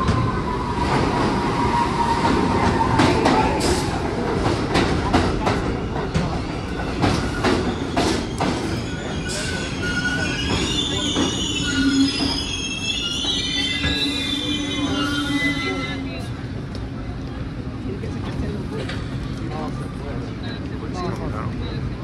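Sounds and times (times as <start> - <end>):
train whine: 0.0 - 22.0
wheels squealing: 7.2 - 16.3.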